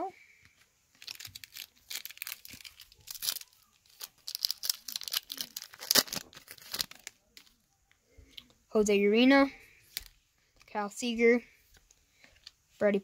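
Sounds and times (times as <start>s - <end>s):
card pack wrapper crinkling: 0.9s - 7.6s
wrapper being torn open: 1.0s - 7.6s.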